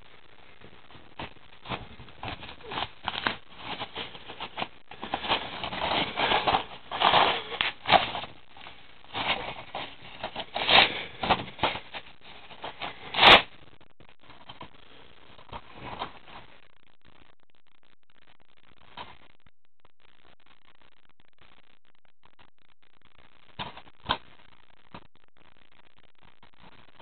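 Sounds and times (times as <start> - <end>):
bubble wrap crinkling: 0.6 - 13.5.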